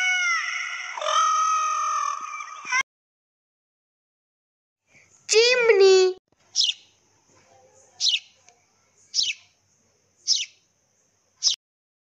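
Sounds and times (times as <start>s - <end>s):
sparrow chirping: 6.5s - 7.0s, 7.8s - 8.4s, 9.0s - 9.6s, 10.2s - 10.7s, 11.4s - 11.6s.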